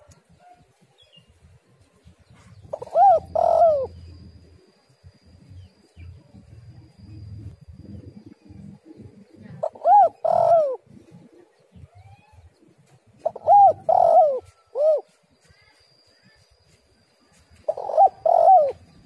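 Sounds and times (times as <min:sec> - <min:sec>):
dove cooing: 0:02.6 - 0:04.4, 0:08.1 - 0:11.4, 0:13.2 - 0:15.2, 0:17.7 - 0:19.0.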